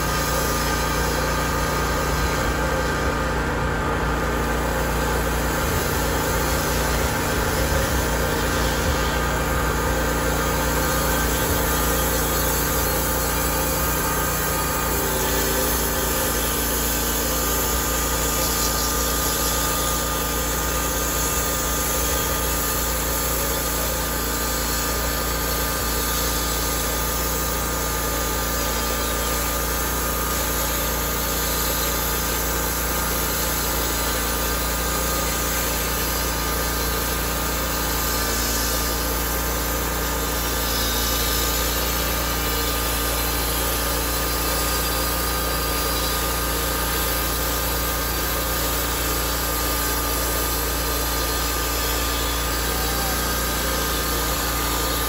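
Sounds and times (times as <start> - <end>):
small engine running: 0.0 - 55.0
band blade cutting log: 4.2 - 55.0.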